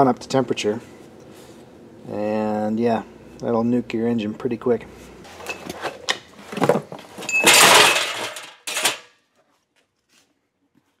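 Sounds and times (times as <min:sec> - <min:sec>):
objects knocking and clattering: 0:05.4 - 0:09.1
scraping rattle: 0:06.6 - 0:09.0.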